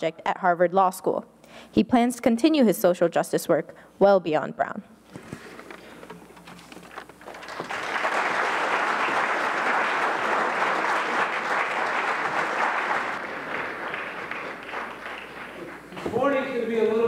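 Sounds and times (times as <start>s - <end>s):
audience applauding: 7.2s - 16.0s.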